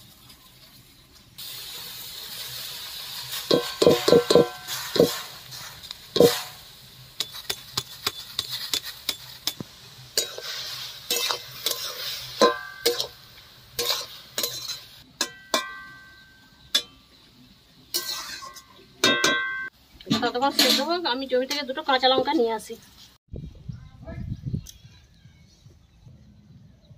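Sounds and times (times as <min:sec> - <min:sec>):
metal spatula clinking in pan: 0:03.5 - 0:05.2, 0:11.1 - 0:13.2, 0:13.8 - 0:17.0, 0:17.9 - 0:19.7
metal ringing: 0:14.4 - 0:17.0, 0:18.0 - 0:19.7.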